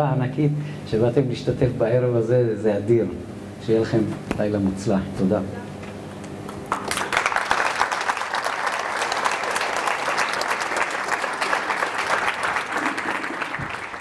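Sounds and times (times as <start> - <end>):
audience applauding: 6.6 - 14.0.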